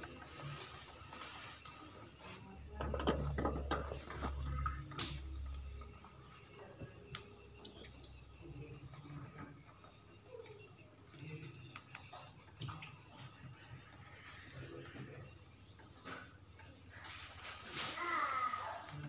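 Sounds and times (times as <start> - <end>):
high insect trill: 0.0 - 19.0
low handling rumble: 2.6 - 8.9.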